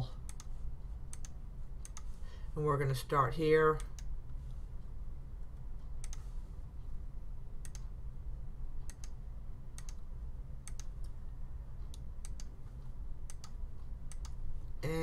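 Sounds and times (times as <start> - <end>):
steady low hum: 0.0 - 15.0
computer mouse clicking: 0.2 - 2.1, 5.9 - 6.3, 7.6 - 8.0, 8.8 - 11.2, 11.8 - 14.4.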